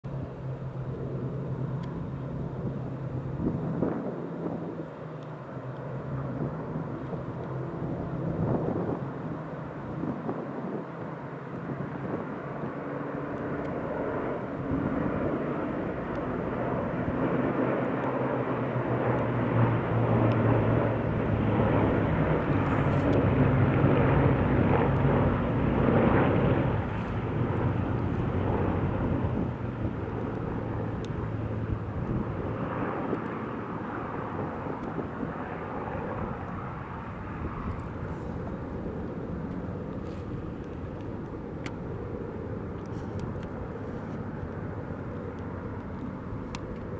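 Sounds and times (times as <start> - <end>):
propeller planes flying past: 0.0 - 46.9.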